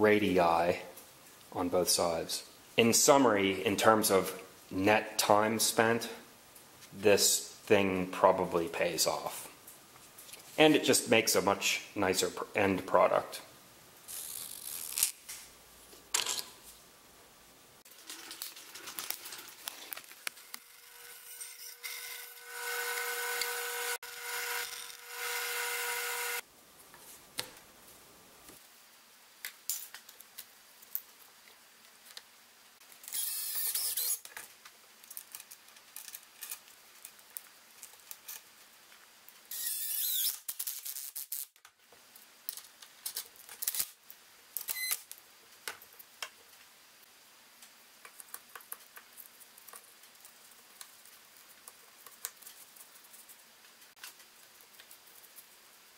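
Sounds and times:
scroll saw motor hum: 20.6 - 26.4.

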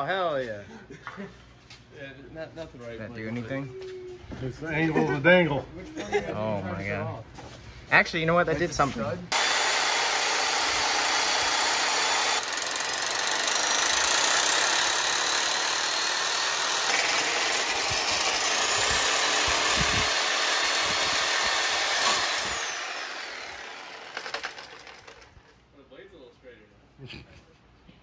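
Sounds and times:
reciprocating saw cutting bolt: 9.3 - 25.4.

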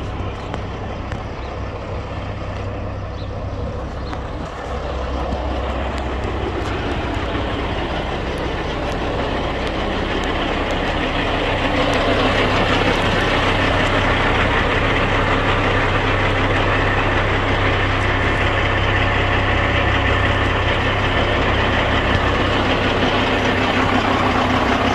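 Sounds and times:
diesel truck engine idling: 0.0 - 24.9.

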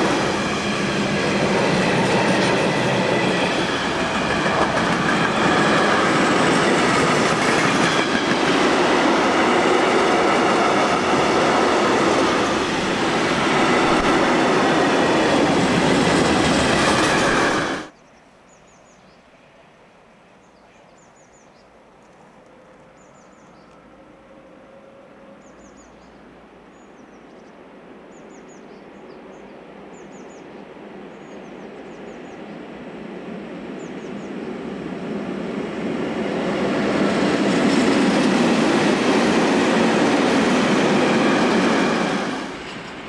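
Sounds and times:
train wheels clattering on rails: 0.0 - 17.9, 36.2 - 43.0.

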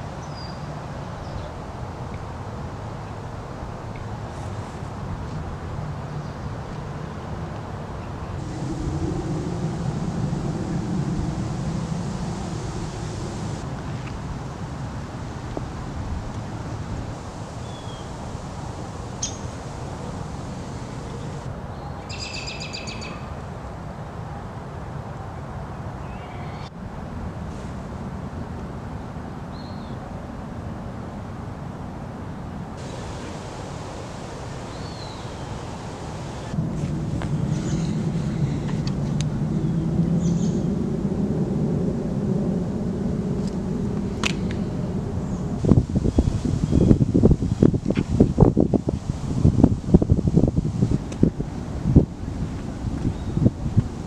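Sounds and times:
wind rumble on microphone: 0.0 - 54.0
vehicle engine humming: 8.2 - 14.4, 18.1 - 21.5, 32.8 - 46.1
songbirds calling: 19.2 - 23.2, 32.8 - 36.6.

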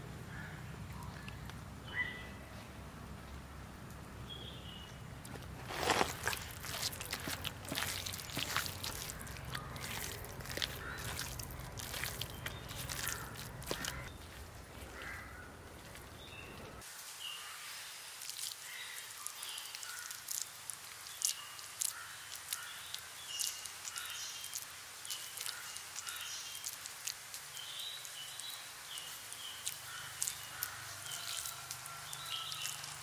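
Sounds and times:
birds chirping: 0.0 - 3.4, 4.2 - 17.5, 27.5 - 33.0
wet squelching of meat kneaded by hand: 5.4 - 16.1, 19.7 - 27.6, 29.2 - 33.0.

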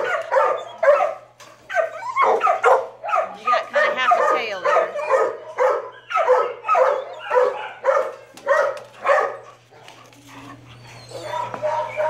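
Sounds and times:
dog barking: 0.0 - 9.6, 11.1 - 12.0.

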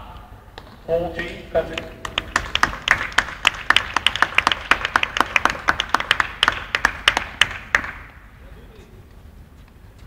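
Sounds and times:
small audience applause: 1.7 - 8.1.

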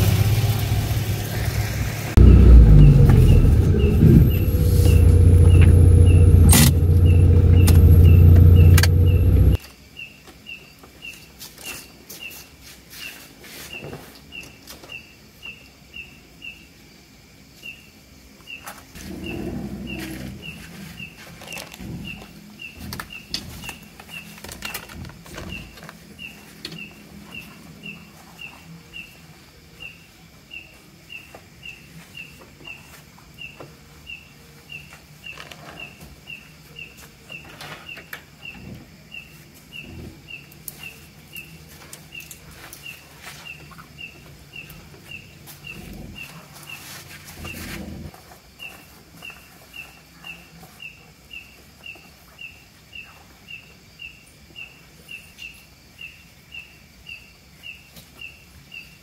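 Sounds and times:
low rumble: 0.0 - 9.6
high chirping: 2.2 - 9.6
scattered clicks: 6.4 - 9.6.

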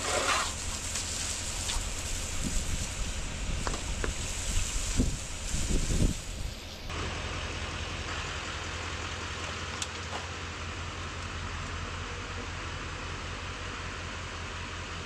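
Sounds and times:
pressure washer spraying water: 0.0 - 6.9
pickup engine running: 0.5 - 15.0.

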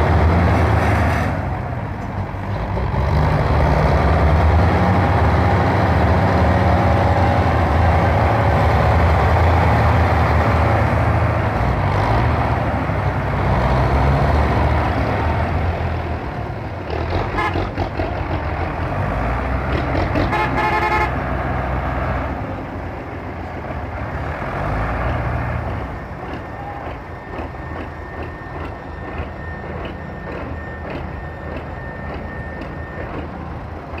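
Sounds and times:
tractor diesel engine under load: 0.0 - 34.0
horn sounding: 17.4 - 17.6, 20.3 - 21.2.

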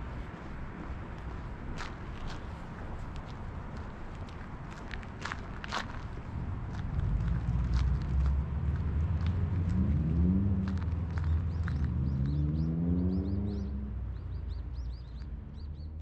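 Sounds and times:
vehicle engine accelerating: 6.6 - 16.0
birds chirping: 11.0 - 16.0.

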